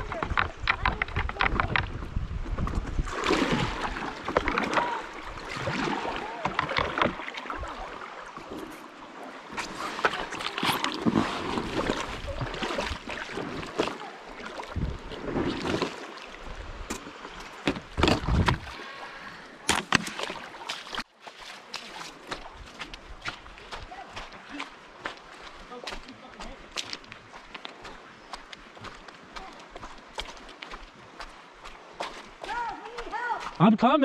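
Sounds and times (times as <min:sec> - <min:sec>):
wind on microphone: 0:00.0 - 0:07.9, 0:14.6 - 0:15.8, 0:17.8 - 0:18.8
paddle splashing in river water: 0:00.0 - 0:33.8.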